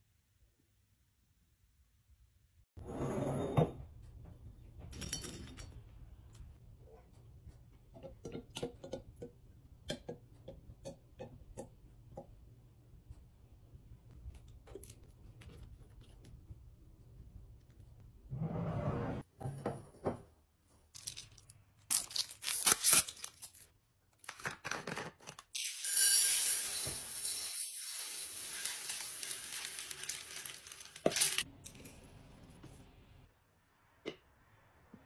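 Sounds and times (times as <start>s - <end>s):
beads pouring into glass jar: 25.6s - 31.4s.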